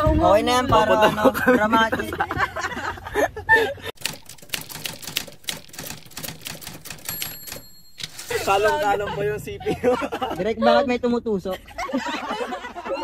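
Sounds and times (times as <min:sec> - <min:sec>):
typewriter key clicks: 0:04.0 - 0:08.3
typewriter bell ring: 0:04.0 - 0:09.0.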